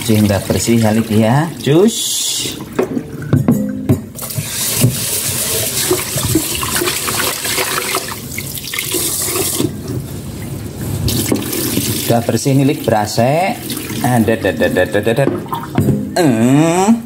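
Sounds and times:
pot knocking against sink: 2.8 - 5.0, 15.2 - 16.2
tap water running into pot: 4.2 - 9.8
water poured into sink: 4.2 - 9.8.

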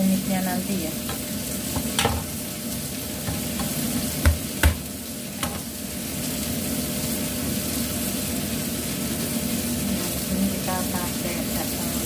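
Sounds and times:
steady kitchen hiss: 0.0 - 12.0
knocks on wooden cutting board: 1.8 - 2.3, 3.2 - 5.6.

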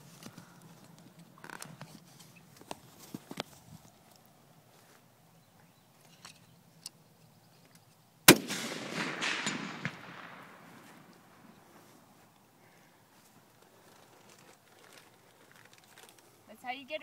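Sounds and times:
rifle shot with rolling echo: 8.3 - 11.7.

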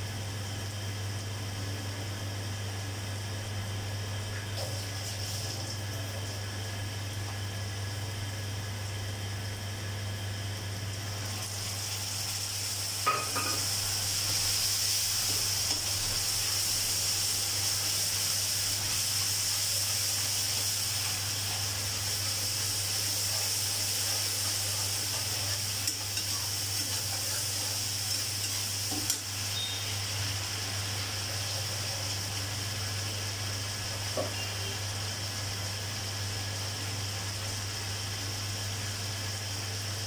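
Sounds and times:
liver sizzling in hot oil: 4.6 - 6.4, 11.0 - 40.0.

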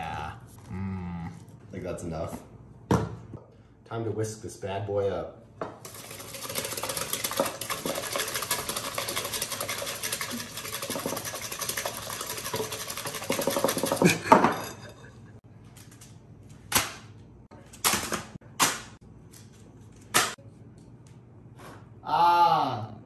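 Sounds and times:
whisk beating in glass bowl: 5.8 - 15.0.

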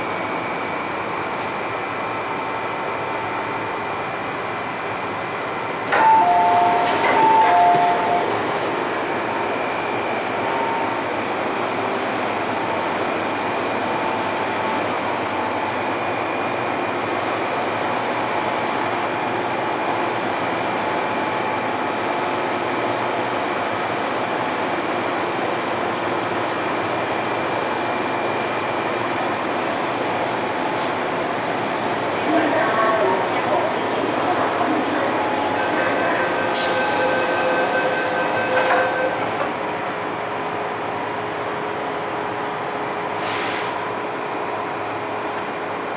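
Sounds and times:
train doors shutting: 5.8 - 19.7, 28.8 - 31.4, 33.8 - 40.0, 42.6 - 43.8
door warning chime beeps: 6.0 - 8.3.

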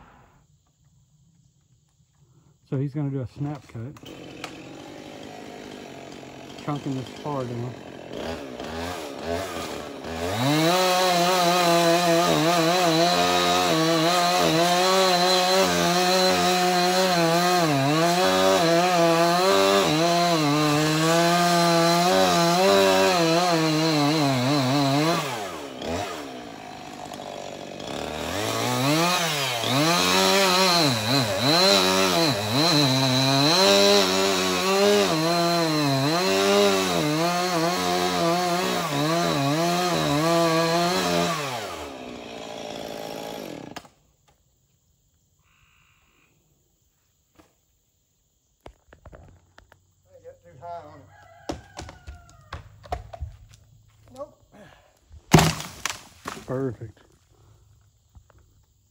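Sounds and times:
chainsaw cutting wood: 3.4 - 44.0, 51.4 - 53.2, 55.3 - 56.6.

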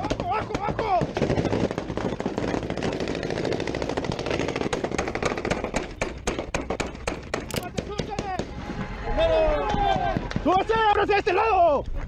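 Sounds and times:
rapid automatic gunfire: 0.0 - 7.7.

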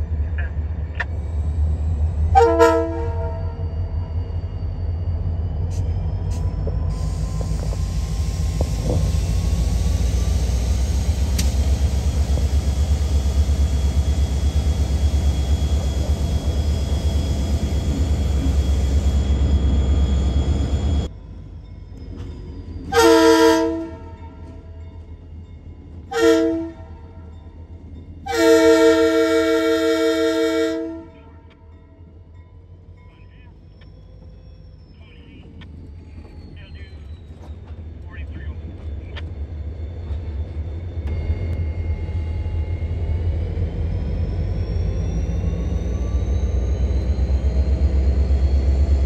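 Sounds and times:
diesel locomotive engine drone: 0.0 - 49.0
locomotive air horn blasts: 2.3 - 3.6, 22.9 - 24.2, 26.1 - 27.0, 28.3 - 31.5.

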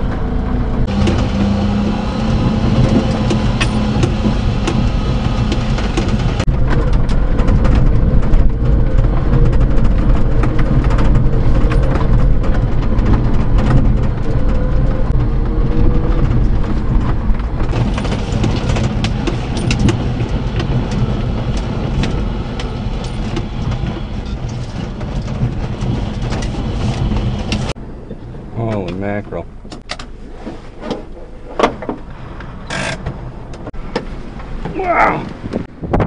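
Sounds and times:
cab rattles: 0.0 - 27.8
truck engine humming: 0.0 - 35.8
gravel crackling under tyres: 0.0 - 36.0.

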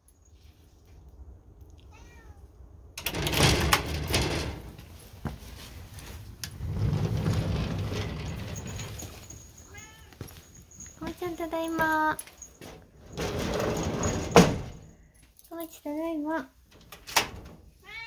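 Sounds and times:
cat meowing faintly: 1.8 - 2.6, 9.7 - 10.2, 17.8 - 18.0
sliding door clattering and scraping: 3.0 - 9.6, 12.3 - 15.0, 16.7 - 17.7.

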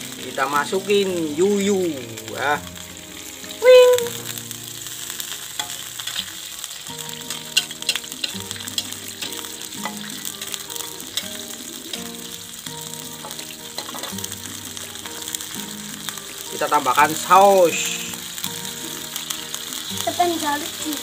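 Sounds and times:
food sizzling in hot oil: 0.0 - 21.0
spatula scraping a wok: 5.5 - 12.4, 13.1 - 14.3.

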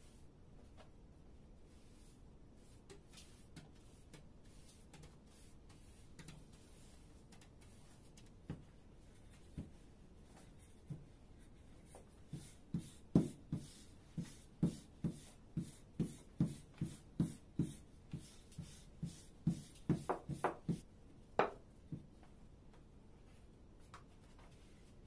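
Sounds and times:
rolling pin knocking on dough: 19.5 - 20.8.

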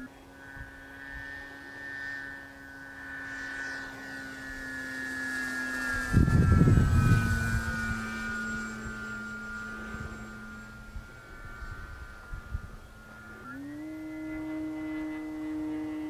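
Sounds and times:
model airplane motor whining: 0.0 - 16.0
wind buffeting microphone: 3.9 - 16.0.

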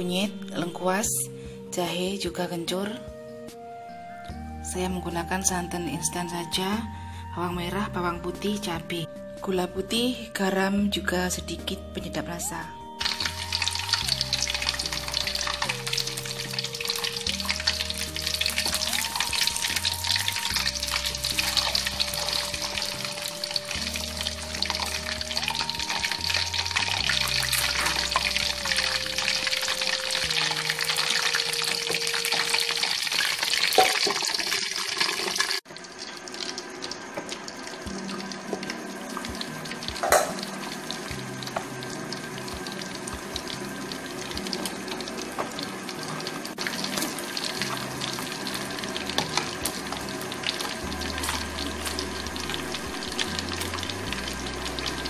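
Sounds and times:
fish sizzling in hot oil: 13.0 - 55.0.

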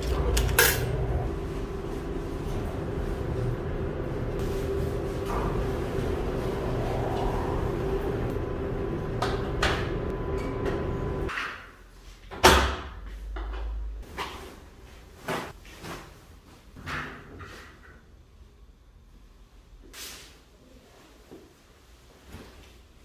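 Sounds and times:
steady machine hum: 0.0 - 11.3.

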